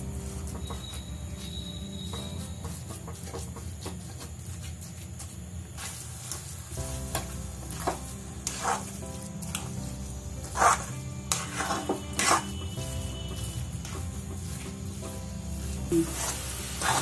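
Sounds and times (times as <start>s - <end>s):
sugar syrup sizzling: 0.0s - 17.0s
spatula scraping metal pan: 7.7s - 9.0s, 10.4s - 14.6s, 15.6s - 17.0s.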